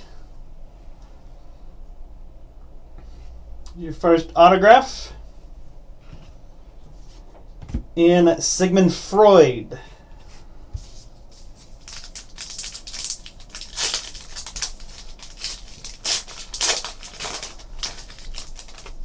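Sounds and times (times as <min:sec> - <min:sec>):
wrapper tearing and crinkling: 0:11.7 - 0:19.0.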